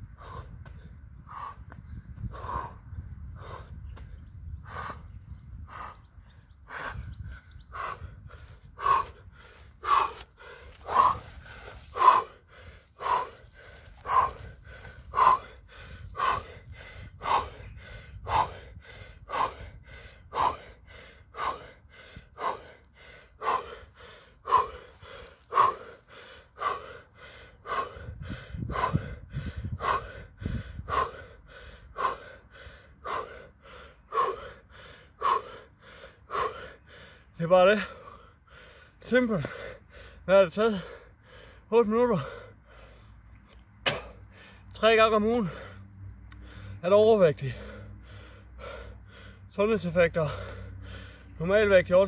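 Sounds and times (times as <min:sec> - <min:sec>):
man panting hard: 0:00.0 - 0:52.0.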